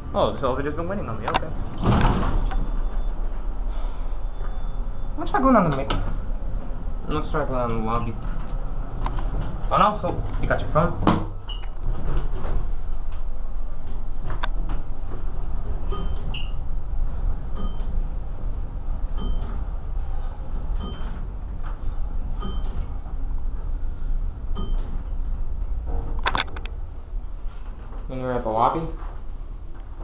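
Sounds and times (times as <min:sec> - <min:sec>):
elevator low rumble: 0:00.0 - 0:30.0
short electronic chime: 0:15.9 - 0:16.7, 0:20.8 - 0:21.5, 0:22.4 - 0:23.2, 0:24.6 - 0:25.4.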